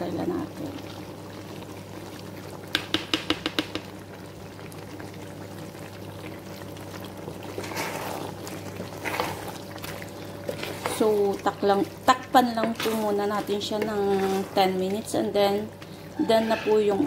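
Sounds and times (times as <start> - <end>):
spatula stirring pasta in sauce: 6.6 - 17.0.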